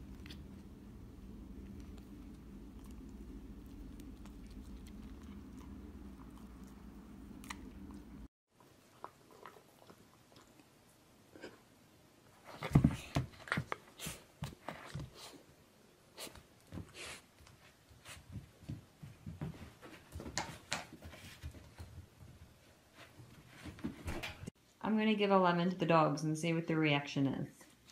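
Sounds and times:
puppy chewing: 0.0s - 11.1s
low steady hum: 0.0s - 13.6s.

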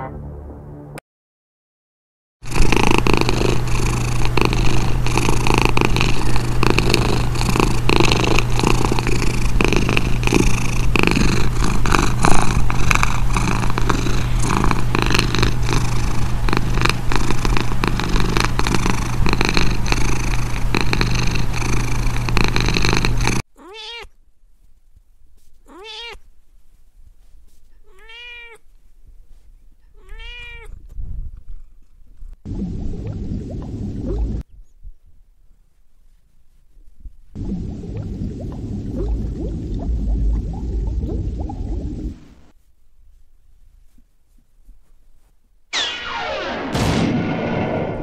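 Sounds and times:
cat purring: 2.4s - 23.5s, 26.5s - 32.8s
cat meowing: 23.5s - 24.2s, 25.7s - 26.3s, 27.7s - 28.6s, 29.8s - 30.8s.

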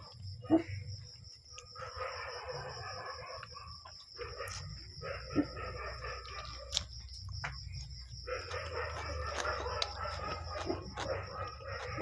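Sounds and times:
chewing and slurping noodles: 3.2s - 12.0s.

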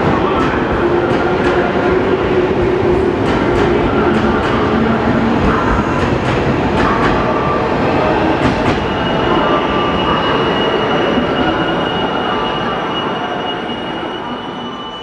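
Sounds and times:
high wheel squeal: 8.7s - 15.0s.

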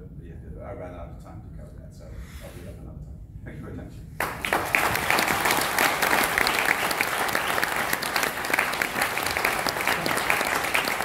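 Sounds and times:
audience applauding: 4.2s - 11.0s.

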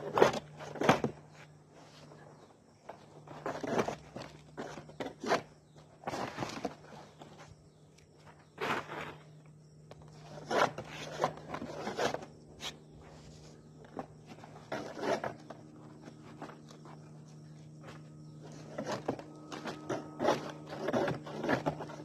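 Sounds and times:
steady low hum: 0.0s - 22.0s
prying off old roofing: 13.8s - 17.0s, 18.4s - 22.0s.

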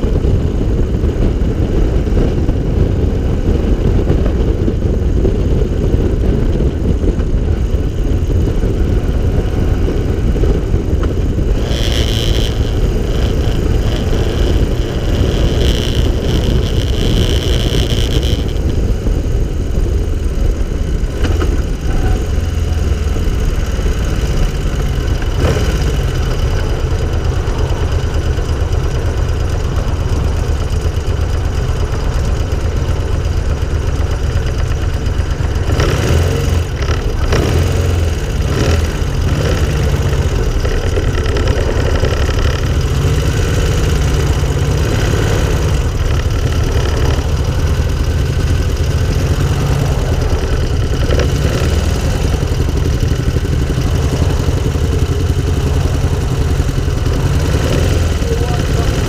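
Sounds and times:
car engine running: 0.0s - 59.0s
wind rumble on microphone: 0.0s - 59.0s.

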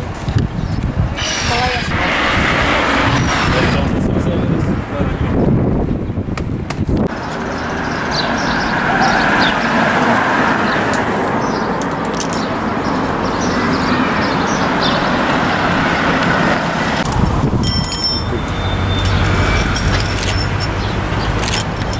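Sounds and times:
street traffic: 0.0s - 21.9s
high-pitched ringing tone: 17.6s - 20.8s.

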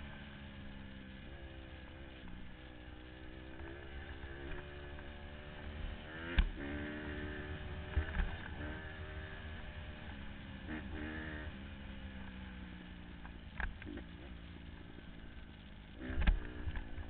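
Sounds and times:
dirt bike engine revving: 0.9s - 12.0s, 15.9s - 17.0s.

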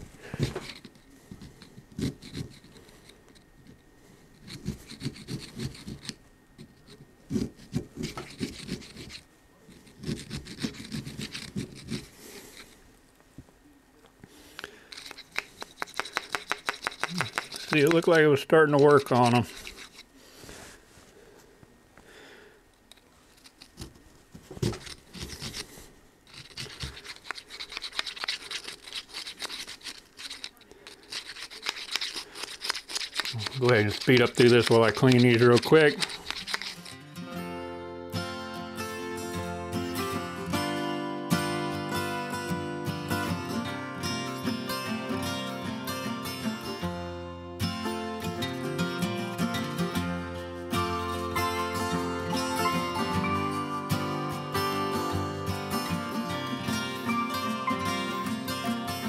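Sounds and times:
screwdriver scraping rust from socket: 0.4s - 3.2s, 4.4s - 9.2s, 9.8s - 12.7s, 14.6s - 20.1s, 22.9s - 23.9s, 24.6s - 25.7s, 26.3s - 37.0s.

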